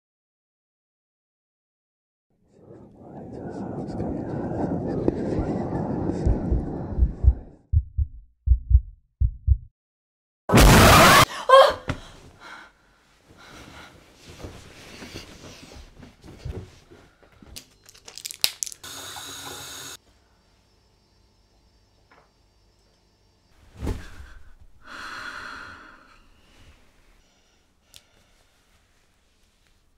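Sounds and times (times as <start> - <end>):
low heartbeat thuds: 6.1 - 9.7
breathing: 11.9 - 15.9, 24.0 - 28.9.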